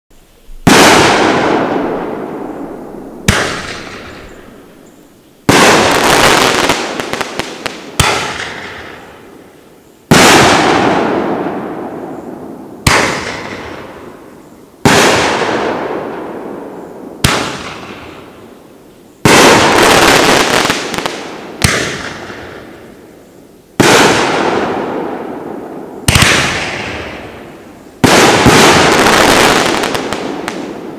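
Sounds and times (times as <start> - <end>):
firework crackling: 0.4 - 23.1, 23.7 - 30.9
firework shells banging with echo: 3.2 - 4.7.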